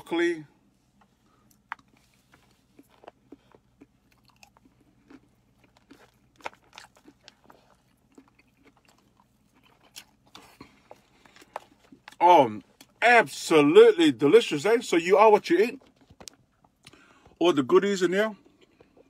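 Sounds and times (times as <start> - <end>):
chewing raw vegetables: 1.4 - 13.0.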